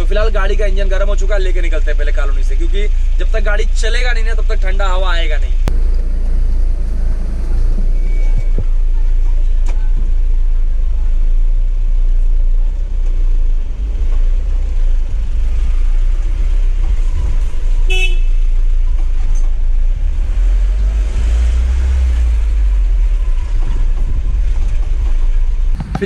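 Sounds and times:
pickup engine rumble in cab: 4.8s - 26.0s
horn toot: 17.9s - 18.4s.

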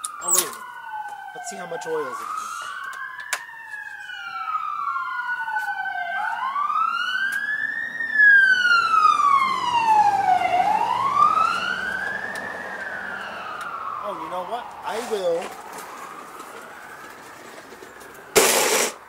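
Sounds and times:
emergency vehicle siren wailing: 0.0s - 19.0s.

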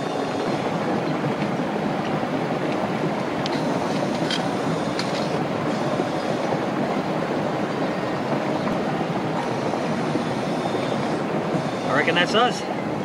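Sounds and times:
boiling water and venting steam: 0.0s - 13.0s.

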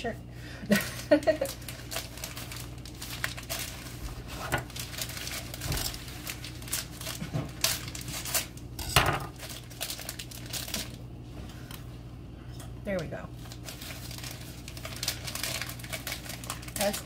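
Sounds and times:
packaging crinkling and tearing: 0.7s - 11.8s, 13.4s - 17.0s
kitchen items clinking and knocking: 8.8s - 9.4s.

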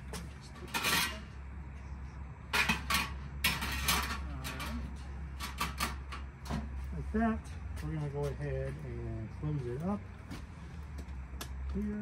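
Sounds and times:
steady low hum: 0.0s - 12.0s
metal trays clattering: 0.6s - 1.3s, 2.5s - 6.2s.

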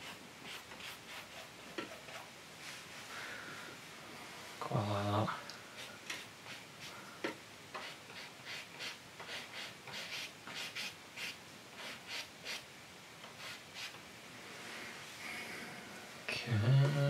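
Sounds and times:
brush scrubbing oil paint: 0.0s - 2.9s, 5.8s - 7.0s, 7.8s - 12.6s, 13.4s - 14.0s.

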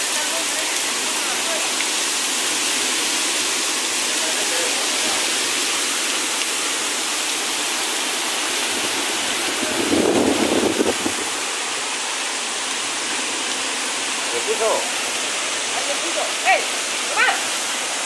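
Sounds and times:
heavy rain pouring: 0.0s - 18.0s
wind storm: 8.5s - 11.4s.

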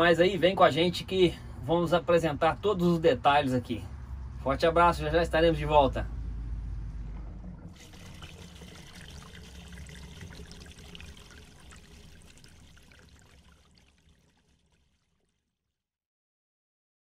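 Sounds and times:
water splashing and trickling: 7.6s - 15.7s.

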